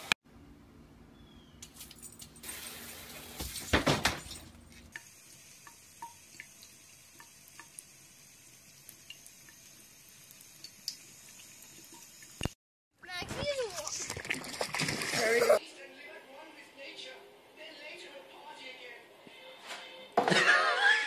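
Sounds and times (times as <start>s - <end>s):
drip-like ticks: 4.9s - 7.9s, 8.8s - 12.6s
water trickling from tap: 4.9s - 12.5s.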